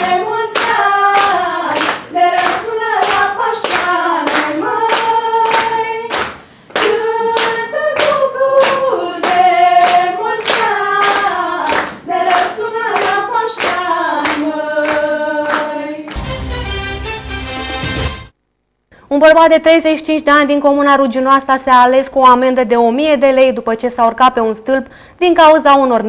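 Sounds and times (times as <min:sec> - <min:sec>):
girls singing together: 0:00.0 - 0:16.2
hands clapping: 0:00.0 - 0:16.3.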